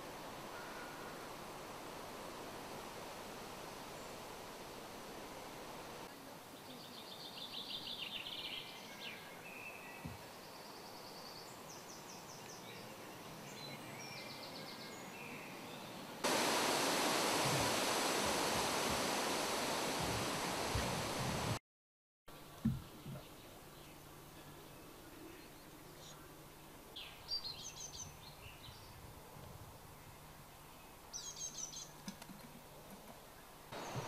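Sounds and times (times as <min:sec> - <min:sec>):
loud steady hiss: 0:00.0 - 0:13.5, 0:16.2 - 0:21.6, 0:33.6 - 0:34.0
low hiss: 0:00.0 - 0:21.6, 0:22.3 - 0:34.0
songbirds trilling: 0:33.8 - 0:34.0.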